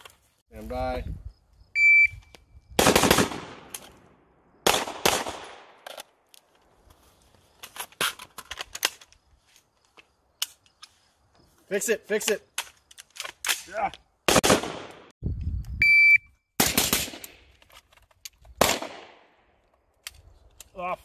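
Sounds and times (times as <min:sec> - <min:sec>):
shot timer beep: 0:15.8 - 0:16.3.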